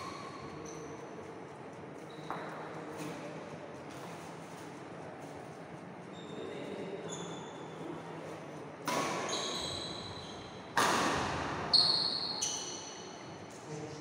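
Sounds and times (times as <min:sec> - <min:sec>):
shoes squeaking on wooden court: 0:02.0 - 0:03.1, 0:06.1 - 0:07.8, 0:08.9 - 0:10.8, 0:11.7 - 0:13.0
racket hitting shuttlecock: 0:08.8 - 0:09.3, 0:10.7 - 0:11.7.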